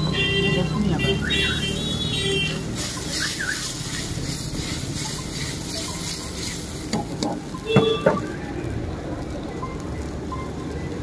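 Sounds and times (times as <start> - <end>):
sauce bubbling and sizzling: 0.0 - 11.0
ladle stirring in wok: 2.4 - 8.0.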